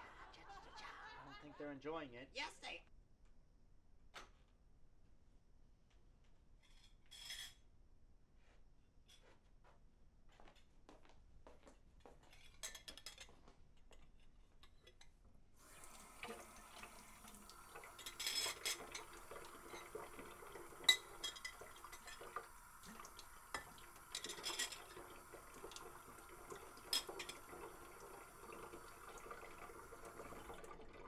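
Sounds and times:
dishes and cutlery clinking: 0:12.4 - 0:13.4, 0:18.0 - 0:20.2, 0:20.8 - 0:22.4, 0:23.5 - 0:25.1, 0:26.8 - 0:27.5
kitchen tap running into sink: 0:15.6 - 0:31.0.

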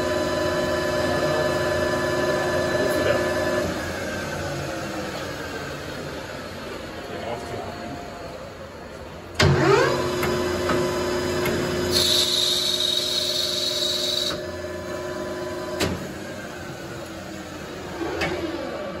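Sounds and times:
lathe motor humming: 0:00.0 - 0:08.8.

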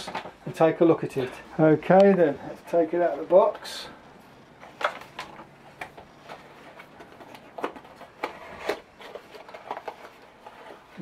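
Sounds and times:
unpacking clicks taps and rustles: 0:04.6 - 0:11.0.

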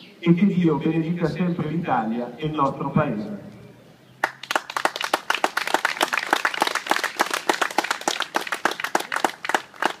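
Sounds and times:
crowd applauding: 0:04.2 - 0:10.0.

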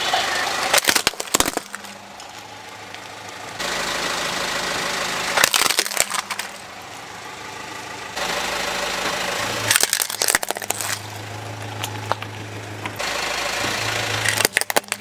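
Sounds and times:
car engine running: 0:00.0 - 0:15.0
plastic toys cracking under tyre: 0:00.7 - 0:03.1, 0:05.4 - 0:06.6, 0:09.7 - 0:13.0, 0:14.2 - 0:15.0.

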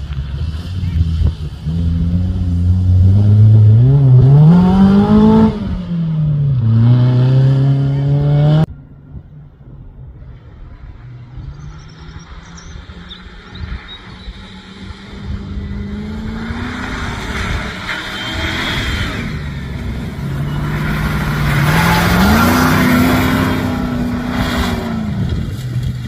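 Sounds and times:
engine revving hard: 0:01.8 - 0:05.9, 0:14.8 - 0:25.4.

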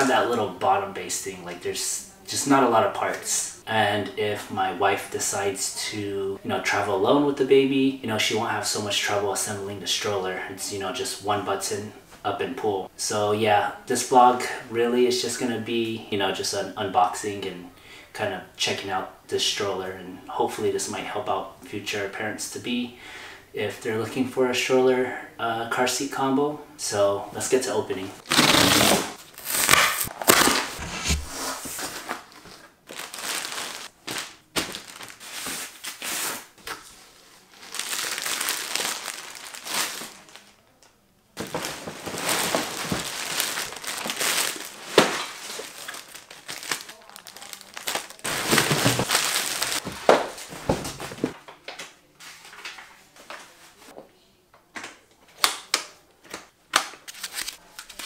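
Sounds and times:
tape being cut: 0:28.2 - 0:31.5
plastic wrapping crinkling: 0:28.2 - 0:40.7, 0:41.4 - 0:51.4
cardboard box handled: 0:29.4 - 0:32.1, 0:48.2 - 0:51.3.

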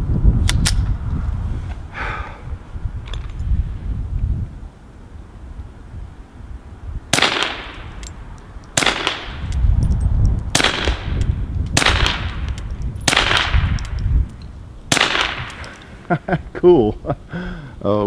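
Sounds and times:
suppressed pistol shots: 0:07.1 - 0:08.0, 0:08.8 - 0:09.5, 0:10.5 - 0:13.9, 0:14.9 - 0:15.7.

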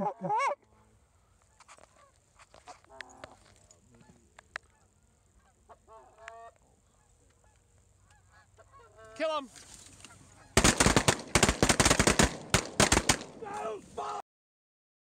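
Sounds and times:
geese honking faintly: 0:00.0 - 0:10.6.

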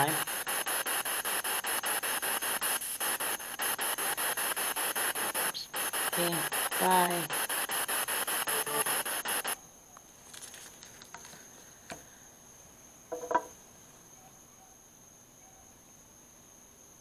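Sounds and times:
chopped radio static bursts: 0:00.0 - 0:09.6
faint steady high whine: 0:00.0 - 0:17.0
faint clicks and rustles: 0:09.9 - 0:12.1.

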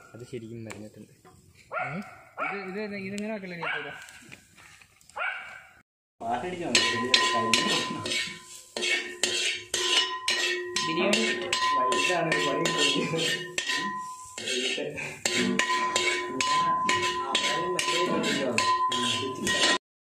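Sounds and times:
metal spoon scraping a metal pan: 0:06.2 - 0:19.8
pan ringing: 0:06.2 - 0:19.8.

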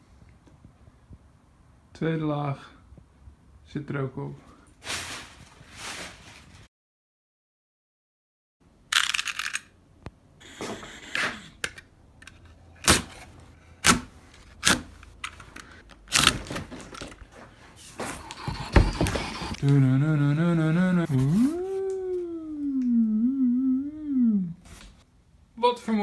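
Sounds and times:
cardboard tearing scrape: 0:12.8 - 0:14.9, 0:17.8 - 0:19.6
cardboard knocks and rustles: 0:18.0 - 0:19.6
man humming: 0:18.3 - 0:24.6.

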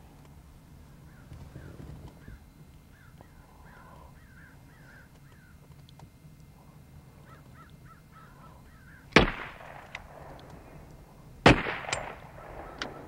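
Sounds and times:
crows cawing: 0:00.9 - 0:05.7, 0:06.7 - 0:09.3, 0:12.0 - 0:13.0
loud gunshots: 0:09.1 - 0:10.3, 0:11.4 - 0:13.0.

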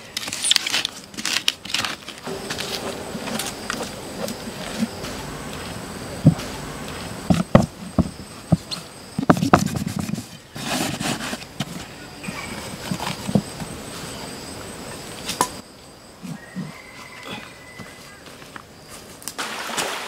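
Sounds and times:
rustling scrape: 0:00.2 - 0:14.2.

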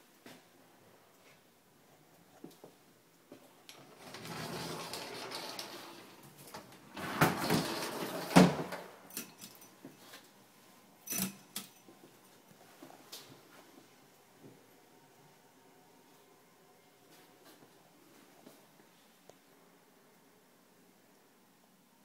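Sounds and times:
closet door scraping rumble: 0:03.8 - 0:08.9.

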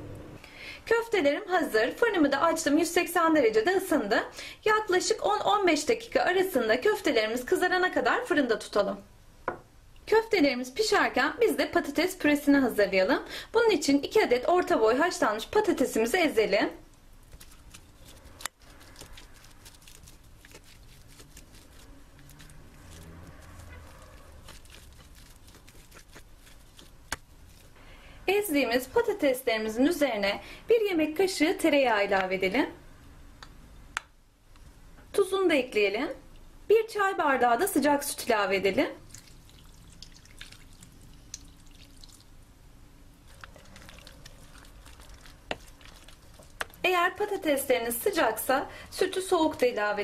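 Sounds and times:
fork mashing potatoes: 0:17.2 - 0:27.8, 0:43.3 - 0:47.9
fork scraping ceramic bowl: 0:17.3 - 0:26.9
milk trickling into a bowl: 0:39.0 - 0:42.4, 0:43.3 - 0:46.8.

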